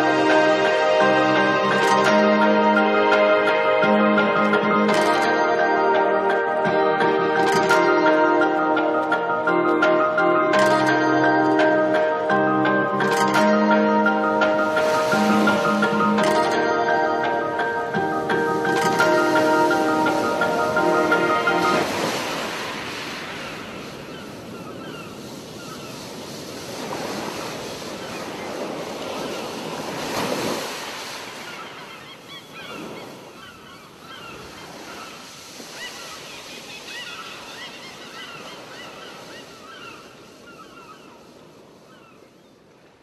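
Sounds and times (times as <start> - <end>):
surf washing on sandy beach: 13.0 - 16.6, 17.5 - 43.0.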